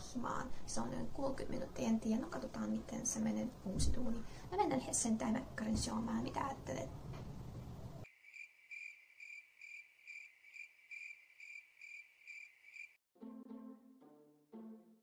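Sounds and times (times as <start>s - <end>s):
high cricket chirp: 8.0s - 13.0s.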